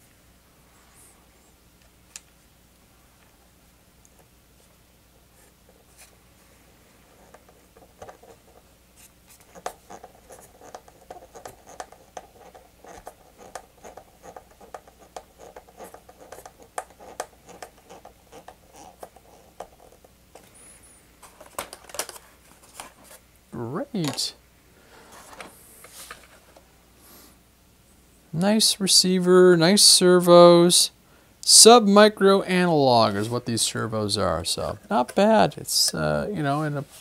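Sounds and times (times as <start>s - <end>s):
screwdriver clicking and scratching: 9.3s - 20.0s.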